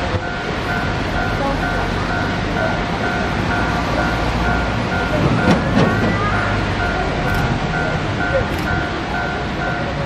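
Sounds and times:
level-crossing warning bell: 0:00.0 - 0:10.0
sharp clicks: 0:07.3 - 0:07.5.

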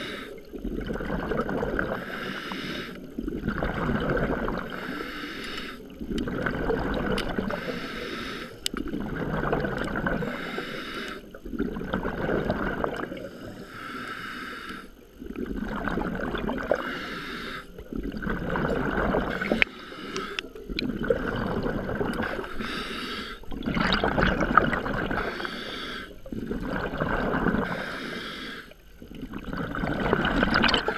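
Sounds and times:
regulator inhale hiss: 0:00.0 - 0:00.5, 0:01.9 - 0:03.2, 0:04.7 - 0:06.0, 0:07.4 - 0:08.7, 0:10.2 - 0:11.4, 0:13.1 - 0:15.2, 0:16.7 - 0:17.9, 0:19.3 - 0:20.7, 0:22.2 - 0:23.6, 0:25.0 - 0:26.6, 0:27.6 - 0:28.9
exhaled air bubbling: 0:00.0 - 0:30.9.

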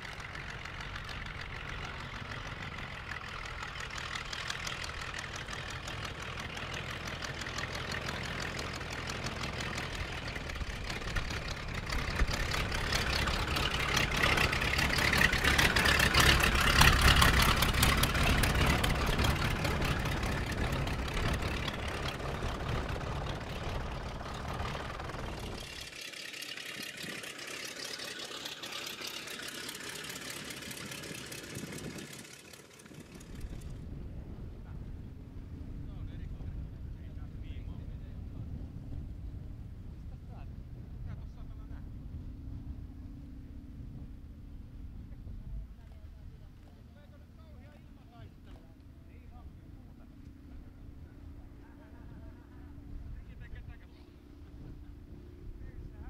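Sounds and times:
propeller noise: 0:00.0 - 0:56.0
radial aircraft engine running: 0:00.0 - 0:56.0.

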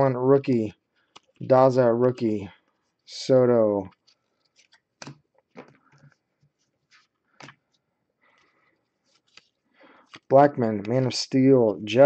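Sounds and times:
cards being flipped: 0:03.8 - 0:07.8, 0:09.0 - 0:11.0.

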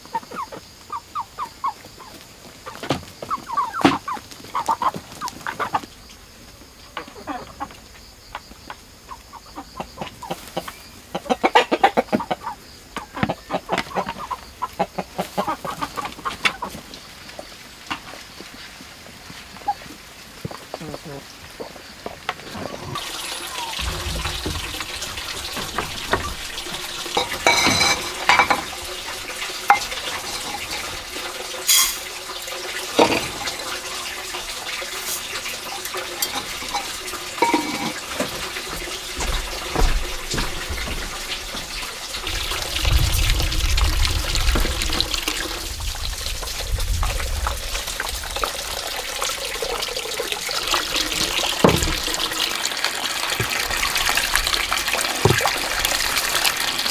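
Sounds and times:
water running: 0:01.9 - 0:56.9
sharp knocks and clatters: 0:23.8 - 0:30.9, 0:36.2 - 0:41.9, 0:51.6 - 0:52.2, 0:55.2 - 0:55.6.

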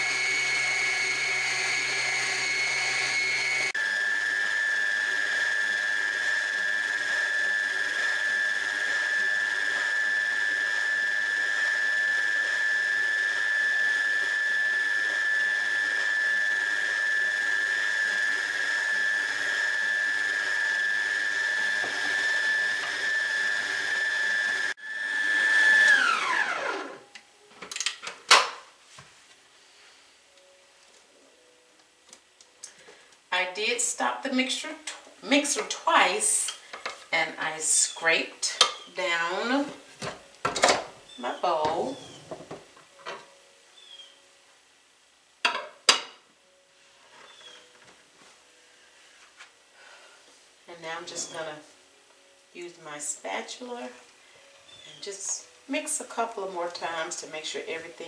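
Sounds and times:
stand mixer motor whine: 0:00.0 - 0:27.0.

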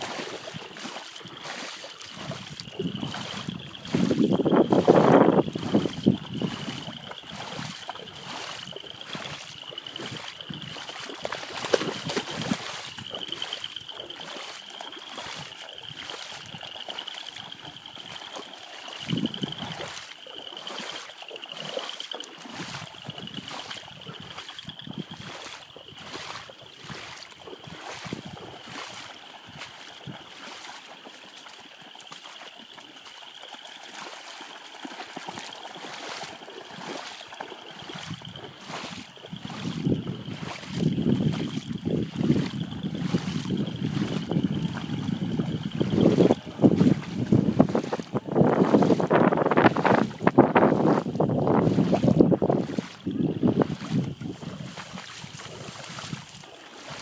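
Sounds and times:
dogs splashing through water: 0:00.0 - 0:57.0.

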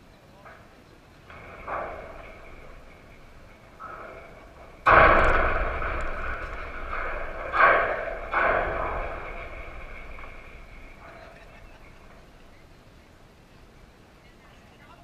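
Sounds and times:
rattling ring: 0:01.2 - 0:13.0
loud knock: 0:01.3 - 0:12.6.

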